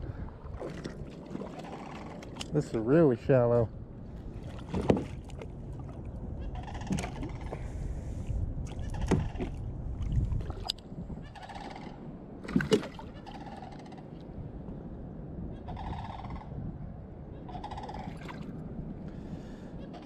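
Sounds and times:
fish splashing into water: 12.4s - 13.1s.

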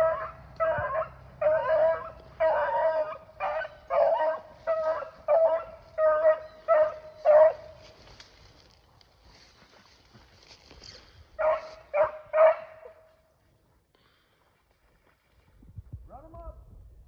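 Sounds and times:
hound baying: 0.0s - 7.9s, 11.4s - 13.1s.

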